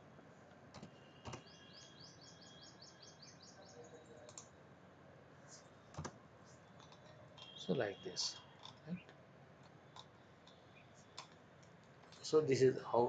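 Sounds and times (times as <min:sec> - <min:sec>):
faint room hiss: 0:00.0 - 0:13.0.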